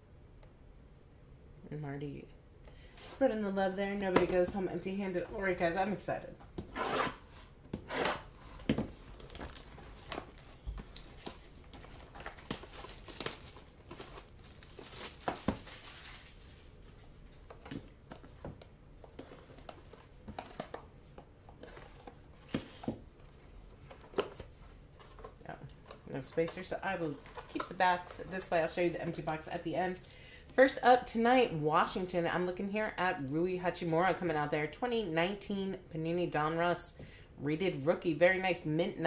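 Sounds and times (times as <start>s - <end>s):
box clicks and scrapes on desk: 6.6s - 8.7s
plastic packaging crinkling and tearing: 9.0s - 17.2s.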